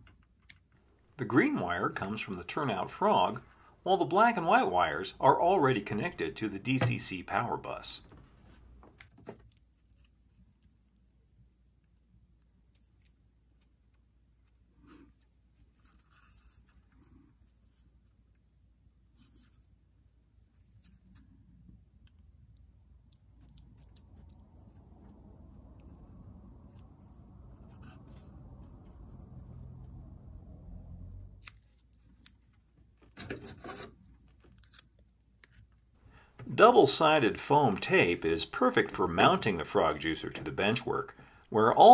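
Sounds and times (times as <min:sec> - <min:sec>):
soft rustle: 0:14.6 - 0:18.4.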